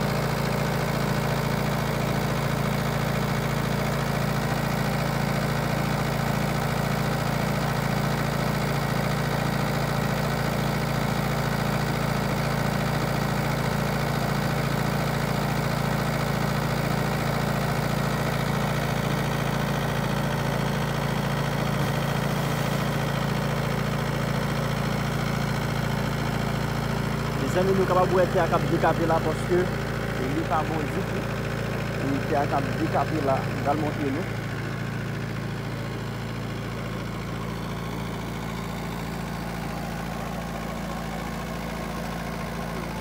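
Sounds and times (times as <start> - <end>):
engine running with low throb: 0.0 - 43.0.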